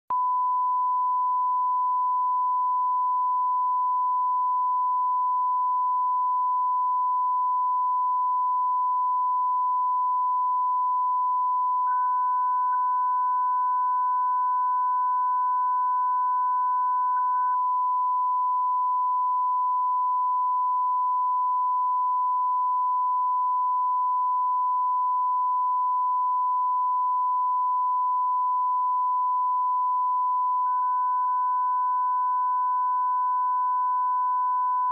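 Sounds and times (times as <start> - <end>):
reference test tone: 9.9 - 19.1.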